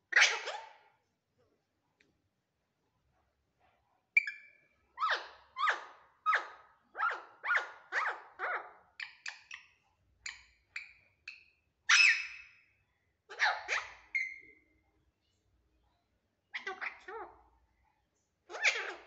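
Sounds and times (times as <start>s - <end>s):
parakeet squawking: 0.1s - 0.8s, 5.0s - 9.6s, 11.9s - 12.5s, 13.3s - 14.6s, 16.6s - 17.4s, 18.5s - 19.0s
parakeet chirps: 4.2s - 12.6s, 13.3s - 14.6s, 18.5s - 19.0s.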